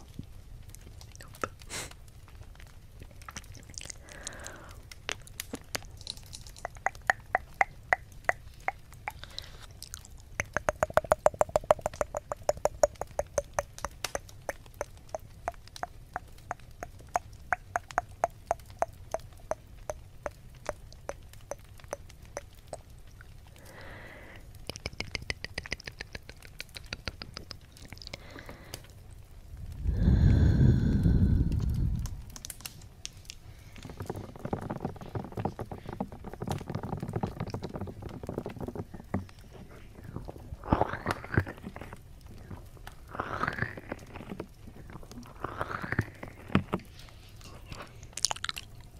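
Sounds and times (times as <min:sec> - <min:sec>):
wet tongue clicks: 0:03.0 - 0:28.9, 0:40.0 - 0:48.9.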